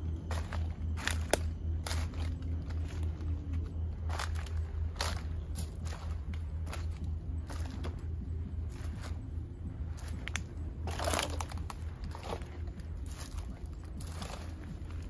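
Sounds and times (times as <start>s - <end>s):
footsteps crunching through dry leaves: 0.0s - 15.0s
steady low hum: 0.0s - 15.0s.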